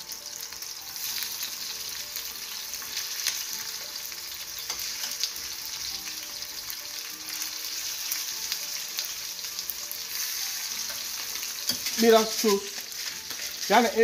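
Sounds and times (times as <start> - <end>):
chicken frying in oil: 11.5 - 14.0.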